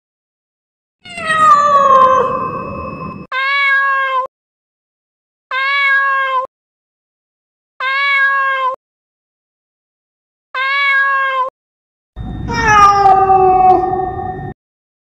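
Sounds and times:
cat meowing: 1.0 - 2.6, 3.3 - 4.3, 5.5 - 6.5, 7.8 - 8.8, 10.6 - 11.5, 12.5 - 14.2.

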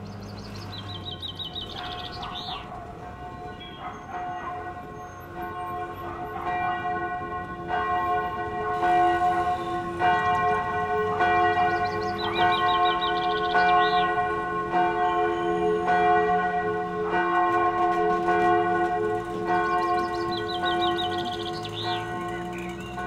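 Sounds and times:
church bells ringing: 0.0 - 23.0
bird trilling: 0.9 - 2.8, 19.9 - 23.0.

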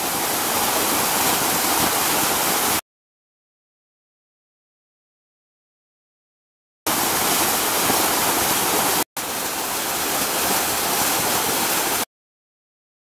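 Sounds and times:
fountain water splashing into basin: 0.0 - 2.8, 6.9 - 12.1.

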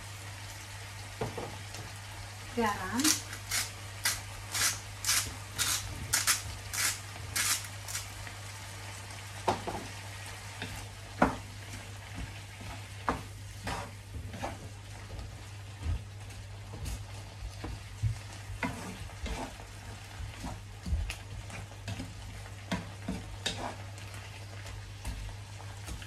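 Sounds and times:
faint frying sizzle: 0.0 - 26.0
salt grinder cracking salt: 3.1 - 8.2
wooden spatula scraping a pan: 10.6 - 15.5, 16.7 - 26.0.

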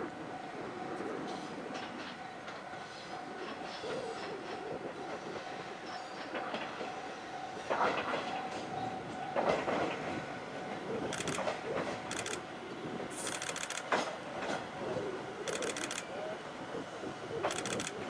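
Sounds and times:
electric train whine: 0.0 - 18.0
train wheels knocking on rail joints: 6.2 - 10.2, 13.4 - 14.8.

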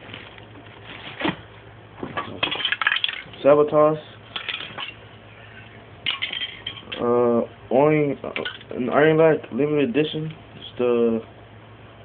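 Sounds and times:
spray cans clinking together: 2.2 - 3.3, 6.1 - 7.0.

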